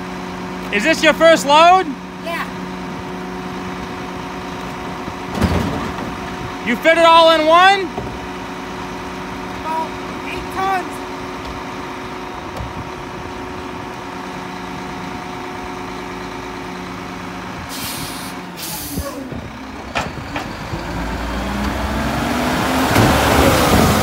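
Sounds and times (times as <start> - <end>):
truck engine idling: 0.0 - 24.0
truck pulling away: 0.0 - 24.0
clunks: 4.6 - 6.5, 19.0 - 21.0
air brakes hissing: 17.7 - 19.3.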